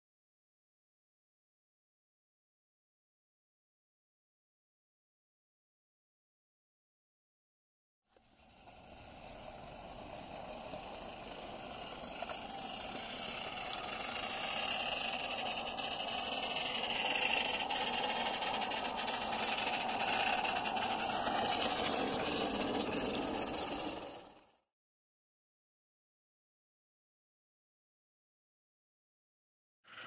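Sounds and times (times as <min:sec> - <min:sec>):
steam hiss: 0:08.2 - 0:24.4
steam locomotive chuffing: 0:08.2 - 0:24.6.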